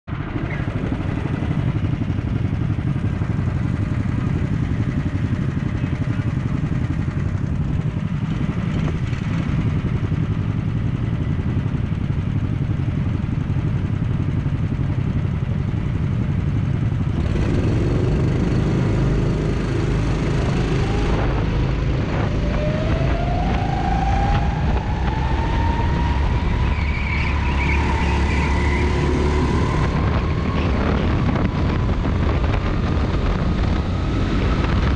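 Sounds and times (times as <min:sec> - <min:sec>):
go-kart engines idling: 0:00.1 - 0:22.2
kart engine revving and accelerating: 0:17.0 - 0:34.9.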